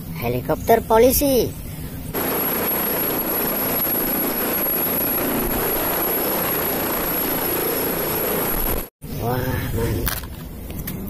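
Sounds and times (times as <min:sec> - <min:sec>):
thin high whine: 0:01.6 - 0:09.3
helicopter hovering: 0:01.8 - 0:08.9.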